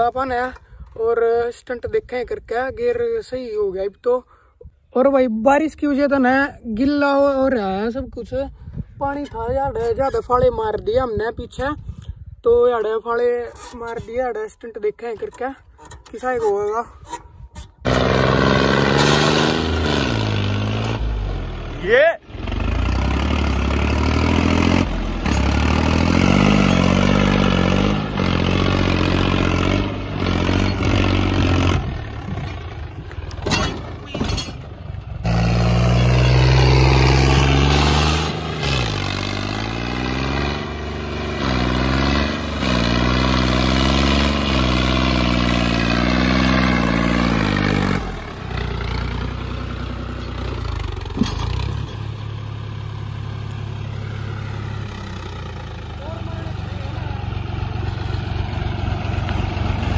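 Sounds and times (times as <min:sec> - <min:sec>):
tractor diesel engine revving: 0:17.8 - 0:59.9
engine clatter: 0:22.3 - 0:53.6, 0:54.4 - 0:59.9.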